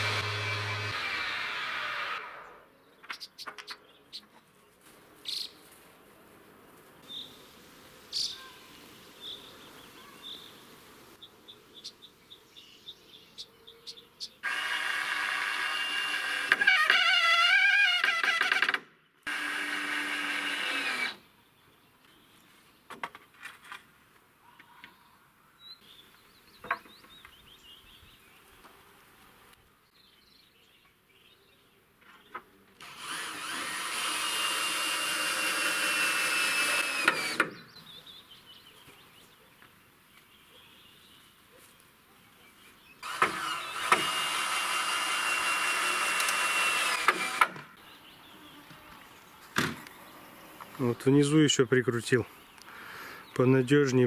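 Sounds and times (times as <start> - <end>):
electric drill driving screws: 0.0 - 2.6, 14.4 - 21.2, 32.8 - 37.6, 43.0 - 47.7.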